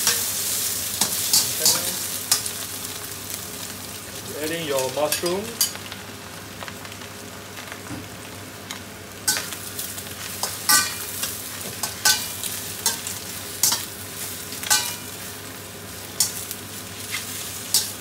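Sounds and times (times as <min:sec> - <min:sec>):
food sizzling in a wok: 0:00.0 - 0:18.0
spatula scraping a wok: 0:16.2 - 0:18.0.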